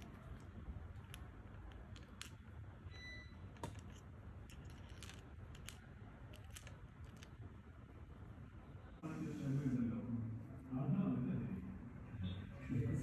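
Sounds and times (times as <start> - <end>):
small clicks of phone parts handled: 0.0 - 2.5, 3.5 - 7.4
low steady hum: 0.0 - 13.0.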